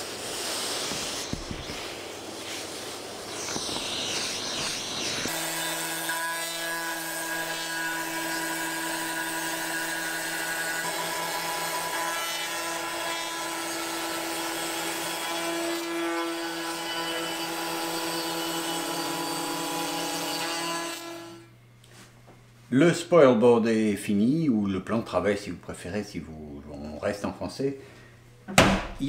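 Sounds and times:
hiss of cutting: 0:00.0 - 0:05.9
router spindle whine: 0:03.2 - 0:11.9.

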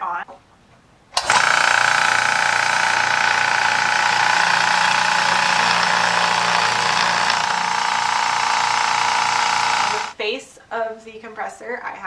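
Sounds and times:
air compressor running: 0:01.2 - 0:10.2.

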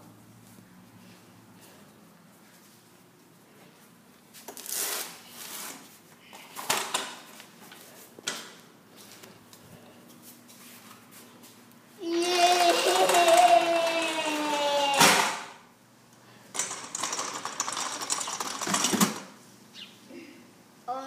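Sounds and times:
toy rustling and clattering: 0:16.5 - 0:19.4.

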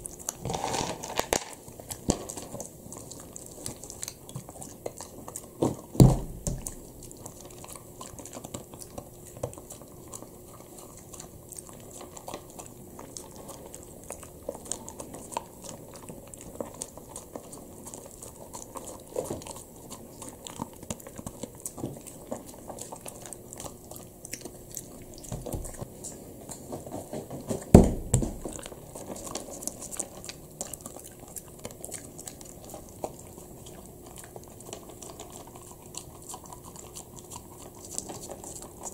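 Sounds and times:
dog crunching dry kibble: 0:00.0 - 0:38.9
louder thumps: 0:27.8 - 0:28.5.

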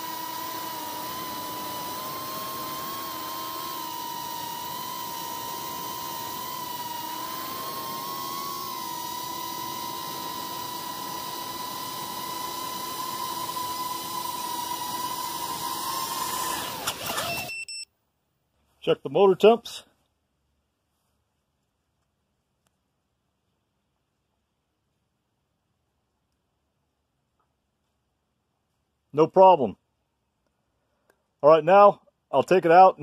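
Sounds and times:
quadcopter motors whining: 0:00.0 - 0:17.5.

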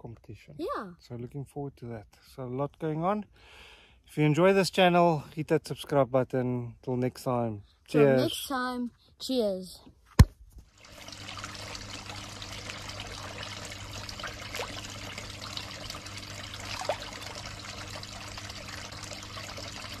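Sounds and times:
water trickling into pond: 0:10.6 - 0:20.0
steady low hum: 0:10.9 - 0:20.0.

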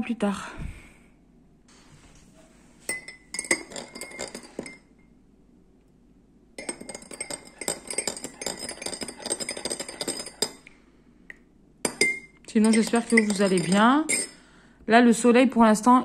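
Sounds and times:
teaspoon clinking against glass mug: 0:02.9 - 0:05.0, 0:06.6 - 0:10.7, 0:11.8 - 0:14.4.

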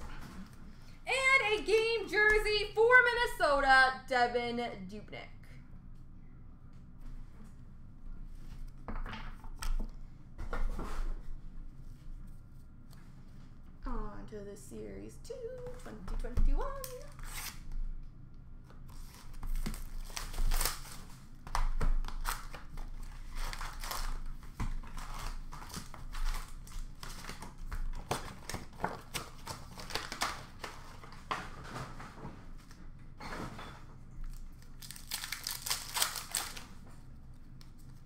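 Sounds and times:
wrappers crinkling and rustling: 0:18.9 - 0:32.8, 0:34.2 - 0:38.0.

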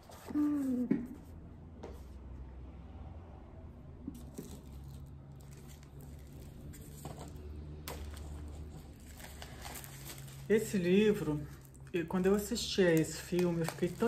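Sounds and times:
paper rustling: 0:04.1 - 0:11.8, 0:12.5 - 0:14.0.

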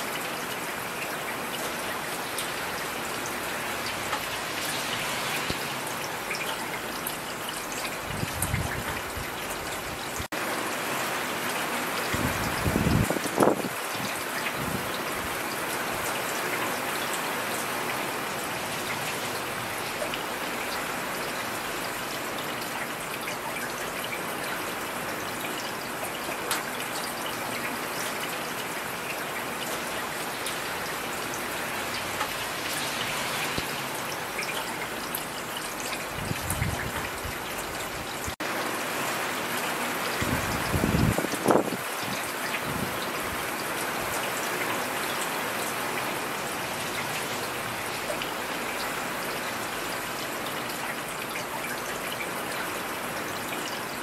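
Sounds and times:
heavy rain hissing: 0:02.2 - 0:08.2, 0:29.4 - 0:36.4.

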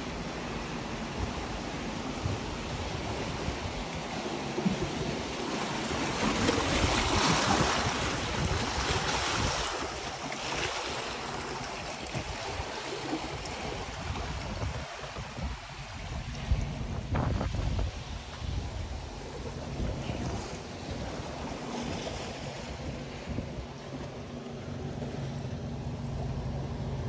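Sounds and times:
waves washing over boulders: 0:00.0 - 0:24.4
wind on microphone: 0:01.0 - 0:25.6.

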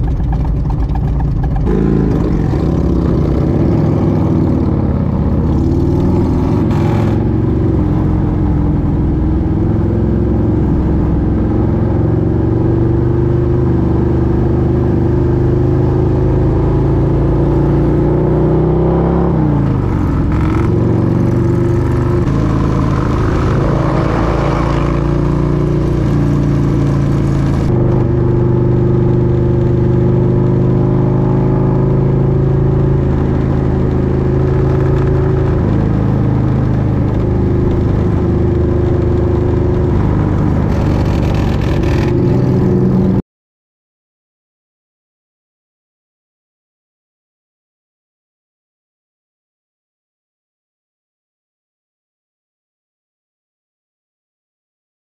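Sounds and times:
motorcycle engine running: 0:00.0 - 0:43.2.

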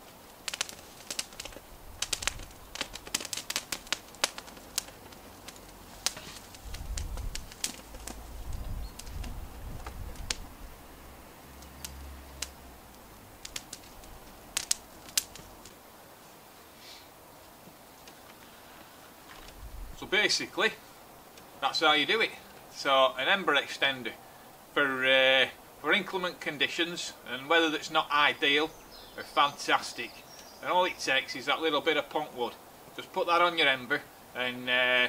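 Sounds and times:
dry grass crackling and popping: 0:00.0 - 0:15.8, 0:18.0 - 0:20.5, 0:28.9 - 0:31.6
low rushing of flames: 0:00.0 - 0:34.4.

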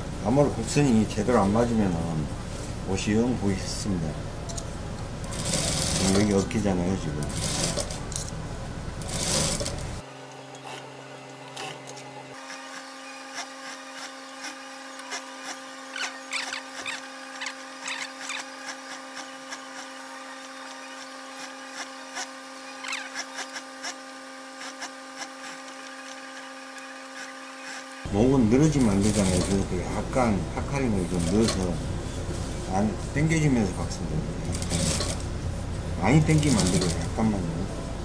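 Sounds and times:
steady hum: 0:00.0 - 0:38.0
sewing machine stitching: 0:05.2 - 0:06.6, 0:07.2 - 0:08.2, 0:09.0 - 0:10.0, 0:28.8 - 0:29.7, 0:34.5 - 0:35.2, 0:36.2 - 0:37.1.

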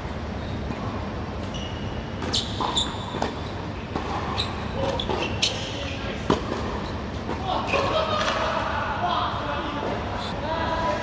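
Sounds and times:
shoes squeaking on court: 0:00.0 - 0:07.8
tennis ball hit and bouncing: 0:06.2 - 0:07.4.

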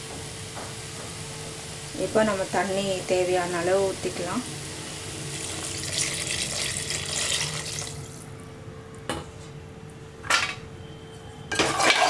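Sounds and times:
water pouring into a pot: 0:04.7 - 0:08.3
metal utensil clattering against pot: 0:11.5 - 0:12.0.

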